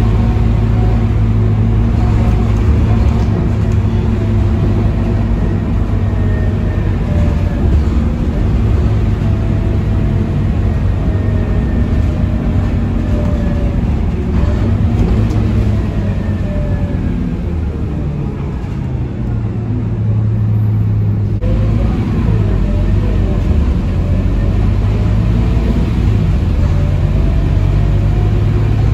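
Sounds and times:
bus engine rumble: 0.0 - 28.9.

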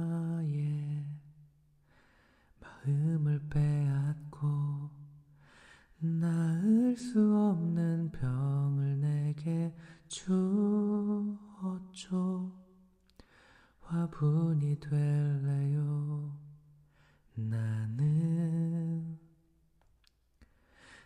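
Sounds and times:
man singing softly: 0.0 - 1.4, 2.6 - 12.8, 13.8 - 16.7, 17.3 - 19.3.

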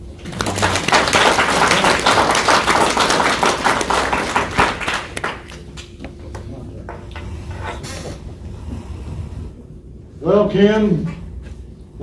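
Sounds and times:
audience applauding: 0.1 - 5.8.

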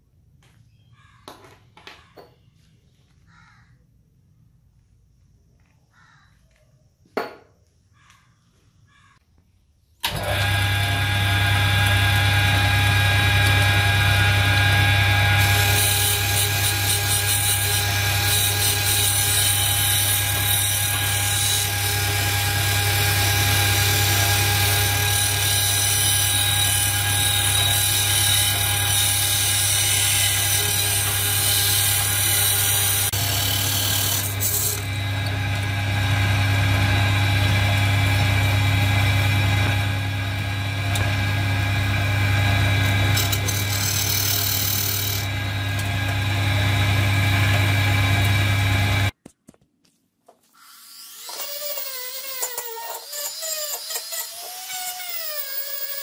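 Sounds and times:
wire wheel brush motor humming: 10.0 - 49.1.

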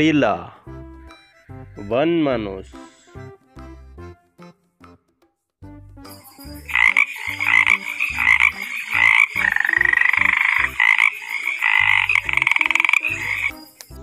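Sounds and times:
frog croaking: 6.6 - 13.6.

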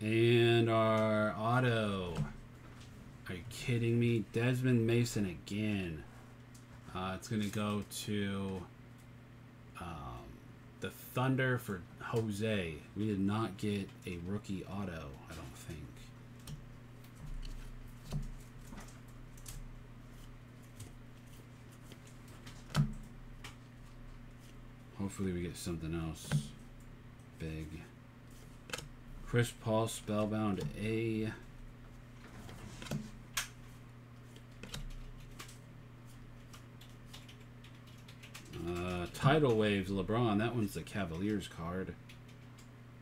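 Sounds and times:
steady low hum: 0.0 - 43.0
cards clicking and sliding: 32.5 - 39.1.

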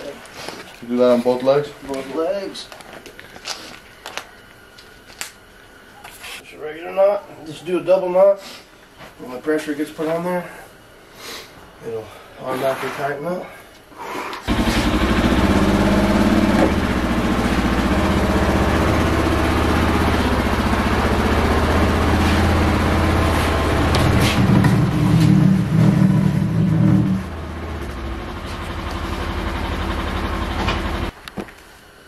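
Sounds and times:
motor running: 14.5 - 31.1.

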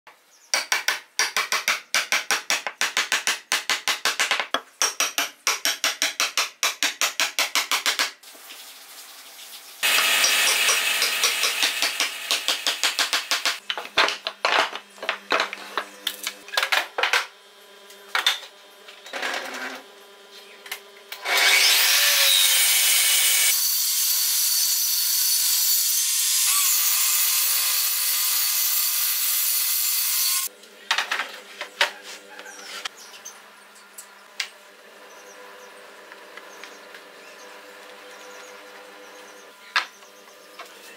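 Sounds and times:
table saw whining: 9.8 - 13.0, 21.2 - 30.5.

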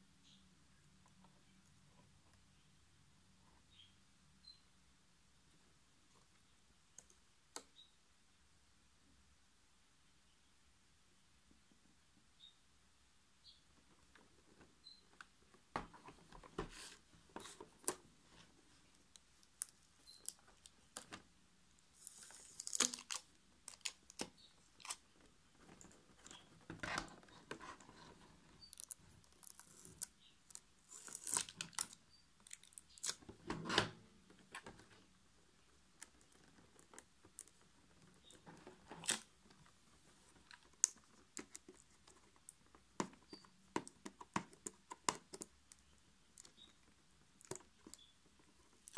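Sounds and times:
plastic crinkling: 22.0 - 33.3.

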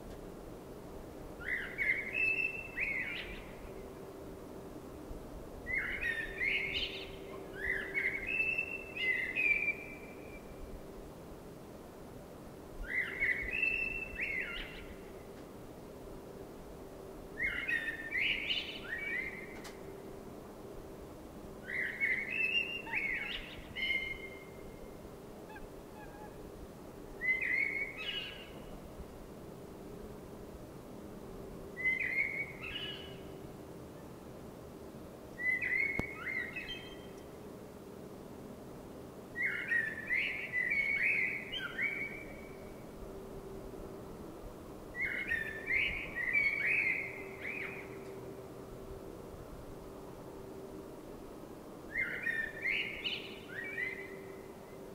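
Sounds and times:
blackbird singing: 1.4 - 3.8, 5.7 - 10.5, 12.9 - 15.0, 17.4 - 19.6, 21.7 - 24.8, 25.5 - 26.5, 27.2 - 28.7, 31.8 - 33.4, 35.4 - 37.2, 39.4 - 42.7, 45.0 - 48.1, 51.9 - 54.6.

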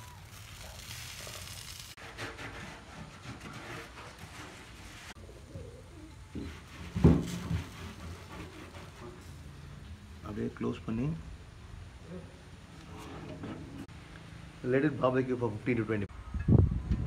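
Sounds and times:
pigeon cooing: 5.2 - 6.4.

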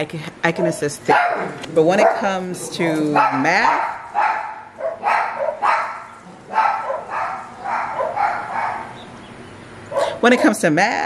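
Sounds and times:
dog barking: 0.6 - 2.4, 3.1 - 9.0, 9.9 - 10.6.

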